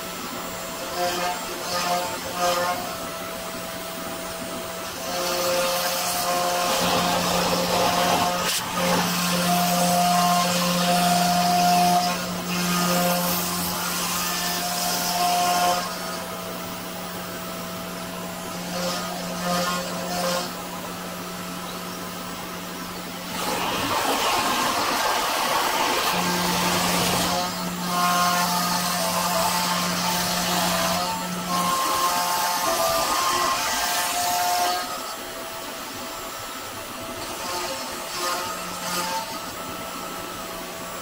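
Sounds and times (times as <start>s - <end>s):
router spindle hum: 0.3s - 33.7s
bit rasping in wood: 23.3s - 35.1s.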